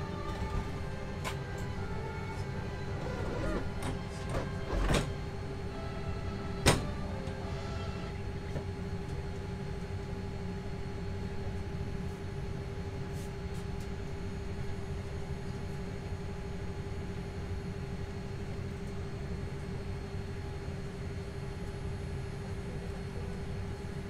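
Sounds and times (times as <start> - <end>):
cabin ventilation rumble: 0.0 - 11.7
constant hum: 0.0 - 24.0.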